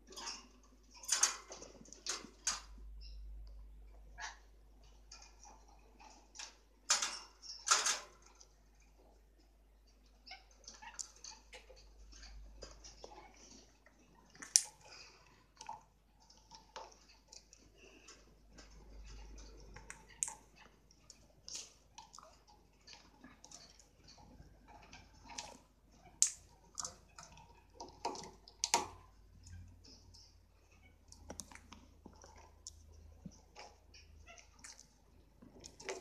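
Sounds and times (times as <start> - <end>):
parrots clicking and tapping in cage: 0.1 - 3.6, 4.2 - 9.2, 10.0 - 36.0.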